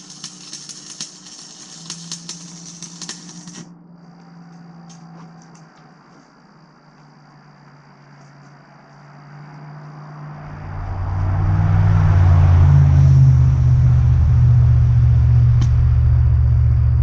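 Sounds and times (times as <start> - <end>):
low engine rumble: 10.2 - 17.0.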